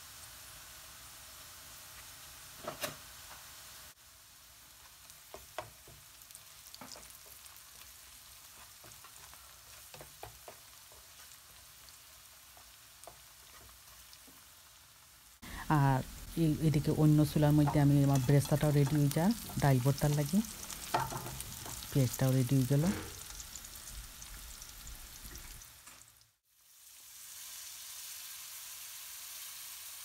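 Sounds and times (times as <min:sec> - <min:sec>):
onions sizzling in oil: 0:00.0 - 0:30.0
spatula scraping and tapping: 0:08.6 - 0:11.3, 0:17.4 - 0:21.9.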